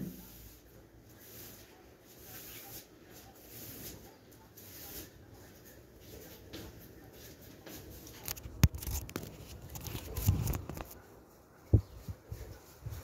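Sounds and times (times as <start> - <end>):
broom scraping tiled floor: 0.0 - 8.2.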